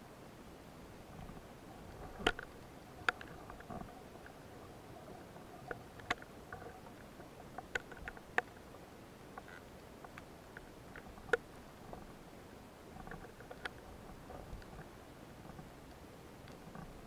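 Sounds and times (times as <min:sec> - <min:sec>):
faint steady hiss: 0:00.0 - 0:17.0
underwater clicks and snaps: 0:01.9 - 0:04.4, 0:05.1 - 0:08.7, 0:09.4 - 0:12.1, 0:13.0 - 0:14.9.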